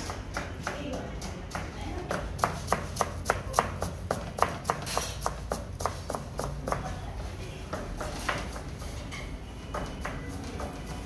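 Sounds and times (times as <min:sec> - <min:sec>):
knife shredding cabbage on board: 0:02.2 - 0:06.9.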